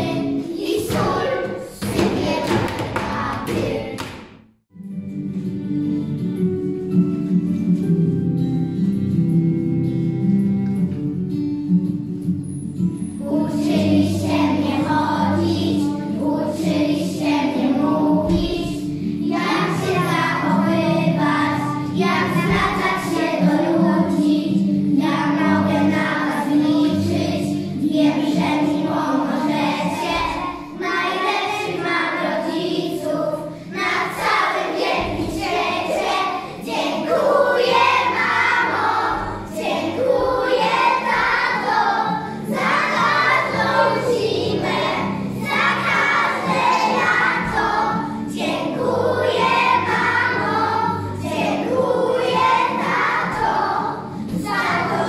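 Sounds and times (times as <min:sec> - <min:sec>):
children singing: 0:00.0 - 0:04.2, 0:13.2 - 0:55.0
instrumental accompaniment: 0:00.0 - 0:55.0.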